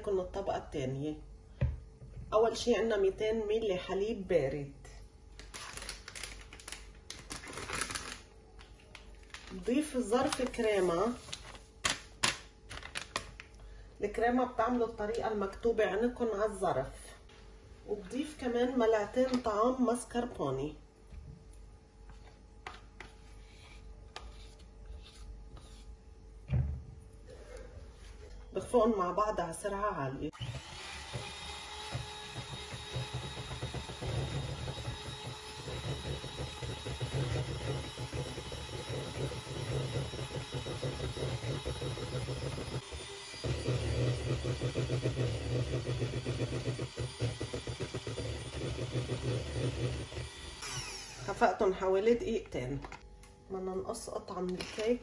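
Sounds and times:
electric hand mixer whipping cream: 30.3 - 51.6.

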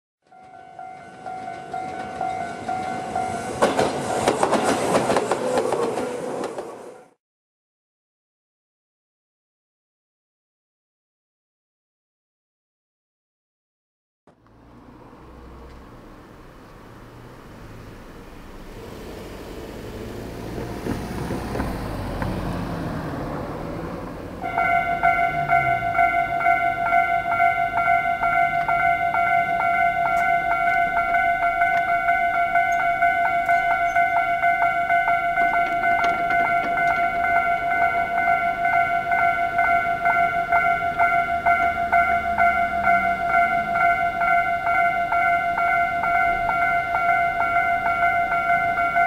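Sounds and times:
level-crossing alarm ringing: 0.3 - 5.3, 24.4 - 49.0
train wheels clattering over rails: 0.4 - 7.1, 23.8 - 44.4.

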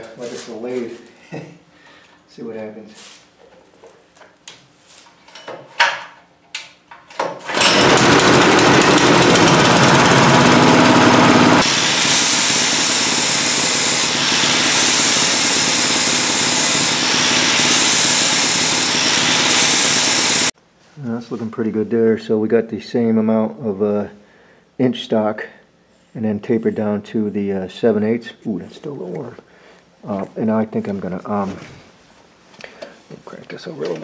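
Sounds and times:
small engine running loudly: 7.5 - 20.5
angle grinder grinding metal: 7.6 - 20.5.

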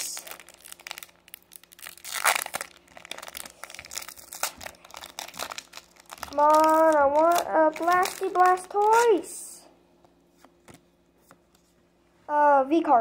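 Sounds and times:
foil wrapper crinkling and tearing: 0.0 - 9.4.

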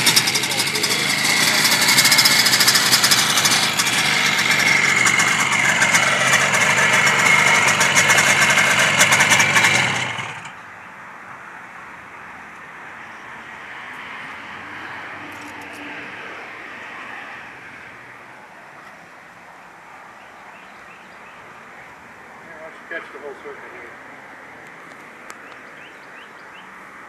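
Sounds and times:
two-stroke motorcycle engine idling: 0.0 - 10.6.

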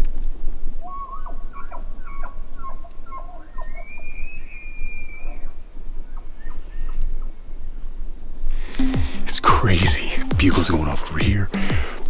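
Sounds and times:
elk bugling: 0.8 - 7.3.

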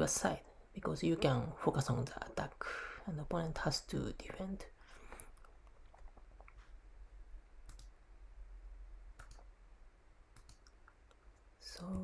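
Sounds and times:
faint low hum: 0.0 - 12.0
computer mouse clicking: 7.6 - 8.0, 9.2 - 9.5, 10.3 - 12.0.

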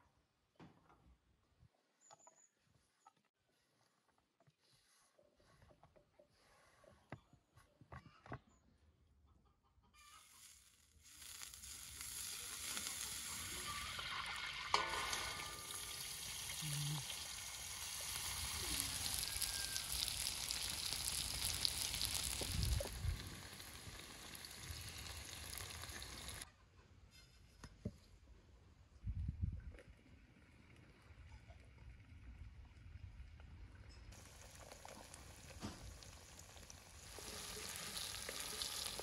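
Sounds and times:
hot oil sizzling in a wok: 10.1 - 26.5, 34.2 - 39.0
rooster crowing: 18.2 - 20.7.

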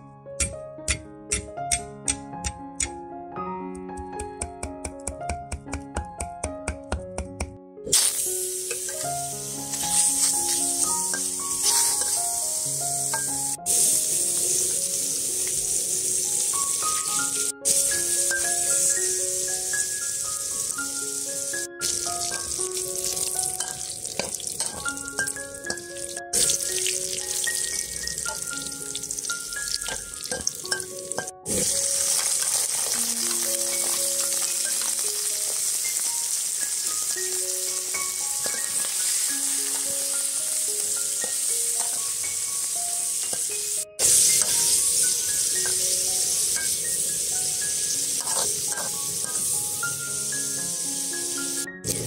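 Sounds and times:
meat sizzling in hot oil: 7.9 - 52.0
metal spatula stirring: 9.7 - 12.3, 21.8 - 35.0, 38.4 - 39.9, 44.0 - 45.8, 48.0 - 49.5.

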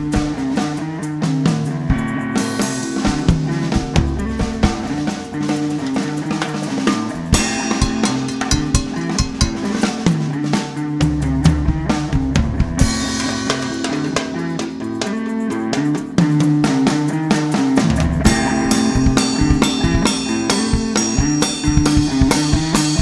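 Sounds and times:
drum kit playing: 0.0 - 23.0
held pitched tones: 6.8 - 10.1.

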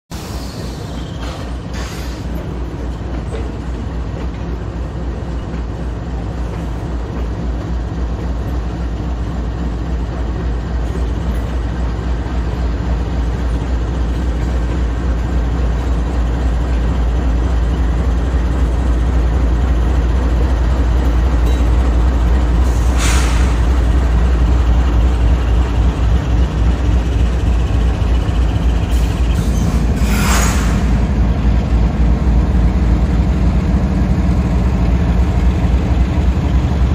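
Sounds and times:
diesel locomotive engine rumble: 0.1 - 36.9
air hissing: 22.6 - 23.8.

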